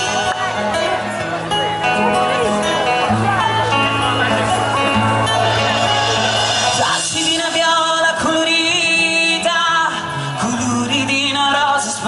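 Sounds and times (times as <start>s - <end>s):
bass line: 0.0s - 9.6s
folk band playing: 0.0s - 12.0s.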